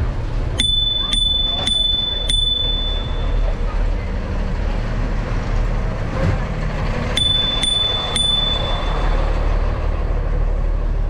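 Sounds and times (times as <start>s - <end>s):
truck engine rumble: 0.0s - 11.0s
bicycle bell ringing: 0.6s - 3.8s, 7.2s - 9.6s.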